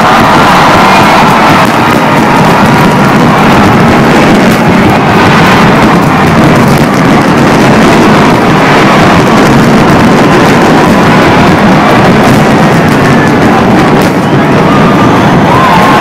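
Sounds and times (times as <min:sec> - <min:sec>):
fireworks explosions: 0:00.0 - 0:16.0.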